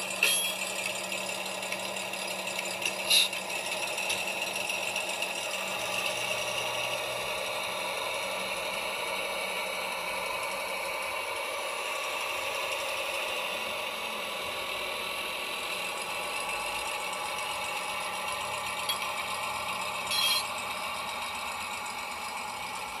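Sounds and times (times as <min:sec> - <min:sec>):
light mechanical rattle: 0:00.0 - 0:04.6, 0:18.7 - 0:20.9
model diesel locomotive engine: 0:00.0 - 0:23.0.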